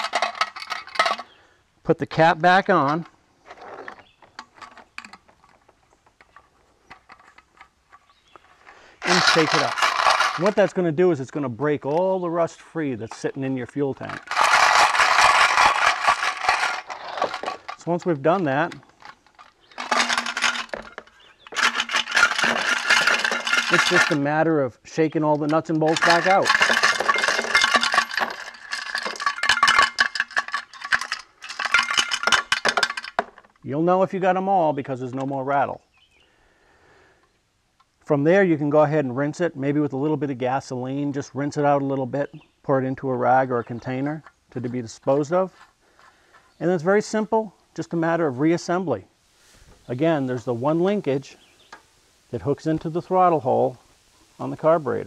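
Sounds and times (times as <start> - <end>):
nuts and bolts clinking: 0.0 - 1.4, 2.1 - 35.5
bolts clinking into plastic tray: 19.7 - 24.3, 25.3 - 33.4
bolts rattling in metal tank: 25.4 - 33.2.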